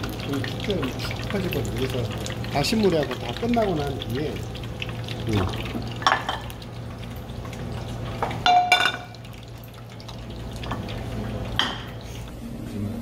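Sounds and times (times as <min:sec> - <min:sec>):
metal pans clanking: 0:08.2 - 0:09.2, 0:11.6 - 0:12.0.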